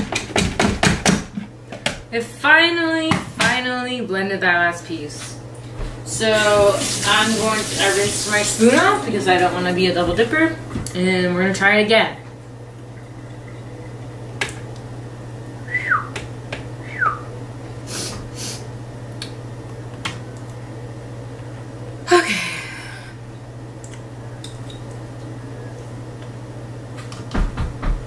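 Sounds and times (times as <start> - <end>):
steady low hum: 0.0 - 28.0
person coughing: 22.1 - 23.1.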